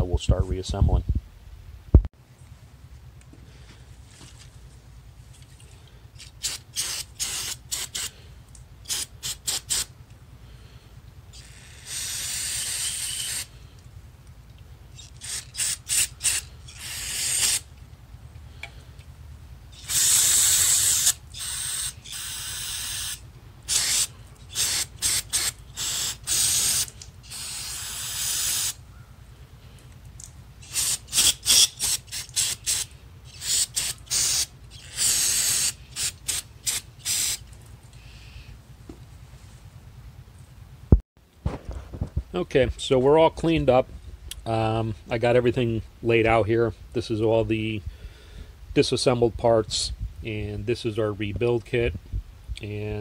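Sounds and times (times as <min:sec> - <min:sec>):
short aerosol squirts: 0:06.2 - 0:08.2, 0:08.8 - 0:09.9, 0:11.3 - 0:13.5, 0:14.9 - 0:17.7, 0:19.7 - 0:28.8, 0:30.6 - 0:38.2
aerosol spray hissing: 0:06.4 - 0:08.1, 0:08.9 - 0:09.9, 0:11.6 - 0:13.5, 0:15.2 - 0:17.6, 0:19.8 - 0:28.8, 0:30.6 - 0:37.5.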